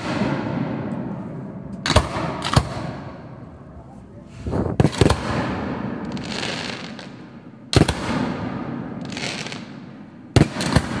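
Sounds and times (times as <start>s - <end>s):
fireworks crackling: 4.2s - 11.0s.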